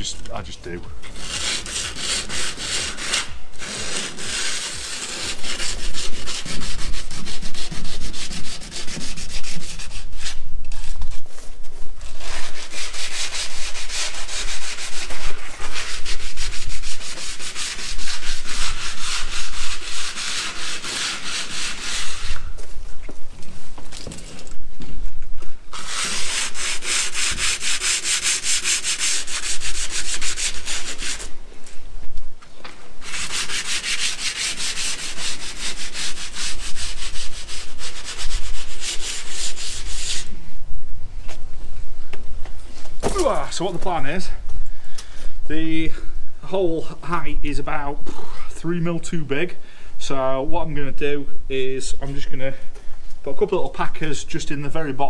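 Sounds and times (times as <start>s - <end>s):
sandpaper rubbing: 1.1s - 22.8s, 25.7s - 31.4s, 33.0s - 40.4s.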